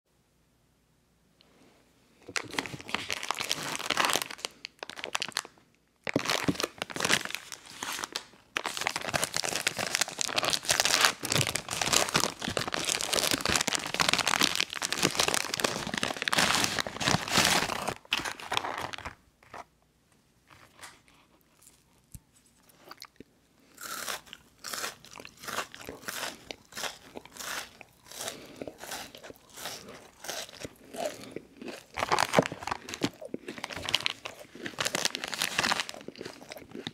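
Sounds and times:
plastic wrapper crinkling: 0:02.2 - 0:19.6, 0:31.7 - 0:36.9
crunchy biting and chewing: 0:20.6 - 0:36.9.

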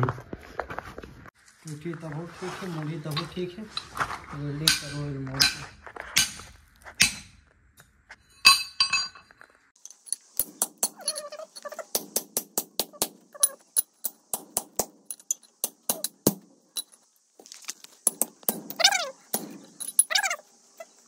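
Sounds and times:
hammer striking steel bar: 0:04.7 - 0:07.4, 0:13.8 - 0:16.4.

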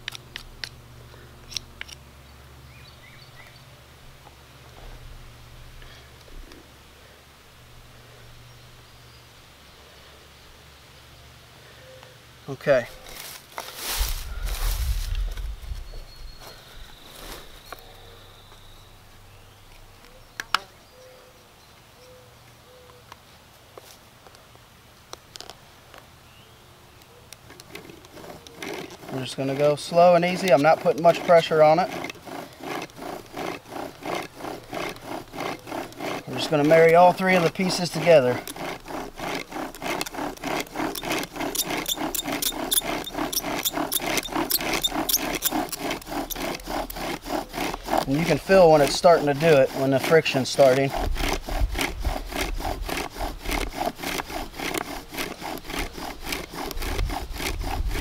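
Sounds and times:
bow drill strokes: 0:12.8 - 0:17.9, 0:27.5 - 0:58.0
wooden spindle rasping and squeaking: 0:27.3 - 0:58.0.

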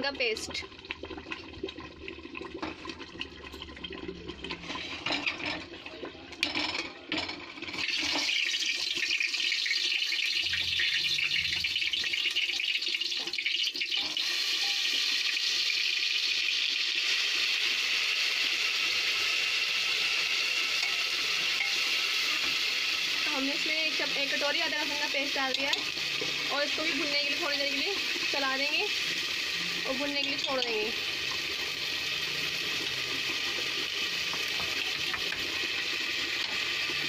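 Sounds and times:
hot oil sizzling: 0:00.0 - 0:37.0.

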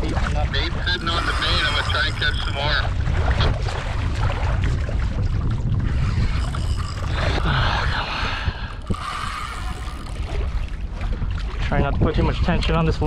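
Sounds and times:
water washing along kayak hull: 0:00.0 - 0:13.0
wind buffeting microphone: 0:00.0 - 0:13.0.

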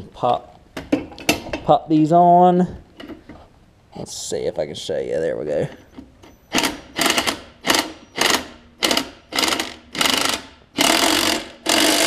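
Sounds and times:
impact wrench hammering: 0:06.5 - 0:12.0.

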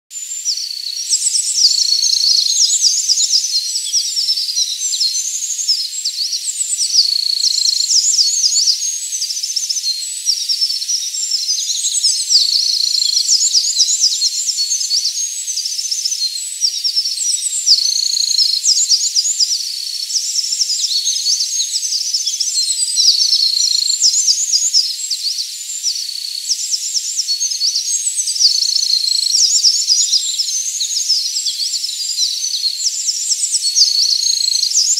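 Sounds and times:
wren singing rapid trills: 0:00.2 - 0:34.9.

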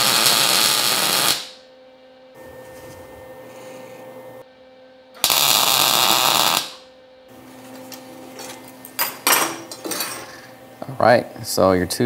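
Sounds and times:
welding arc buzzing: 0:00.0 - 0:01.7, 0:05.2 - 0:09.2.

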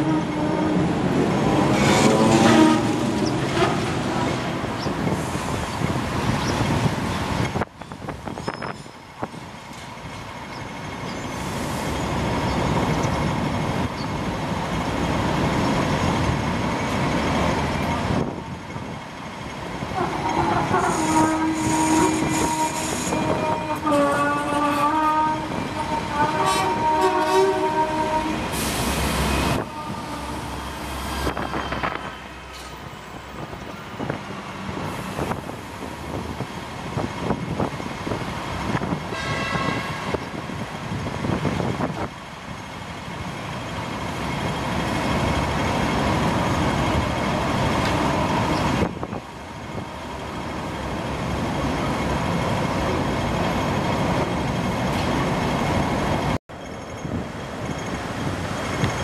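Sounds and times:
tram pulling away: 0:00.0 - 0:59.0
passing vehicles: 0:00.7 - 0:07.7.

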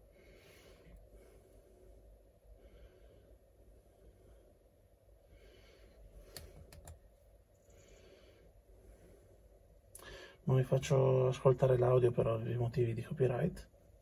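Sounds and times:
faint breathing: 0:00.0 - 0:06.9, 0:07.6 - 0:10.5.

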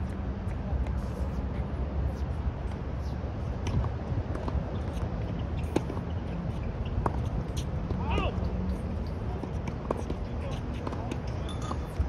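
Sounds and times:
tennis ball struck by rackets: 0:03.6 - 0:06.1, 0:07.0 - 0:08.2, 0:09.4 - 0:12.0.

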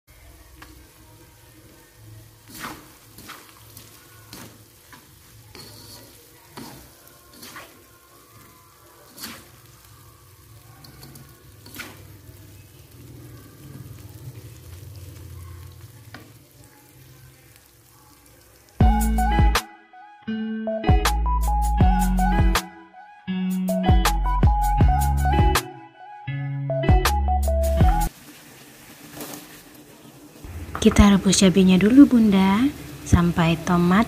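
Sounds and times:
food sizzling in a wok: 0:00.1 - 0:19.6, 0:28.0 - 0:34.0
spatula scraping a pan: 0:02.4 - 0:09.8, 0:10.8 - 0:12.2.

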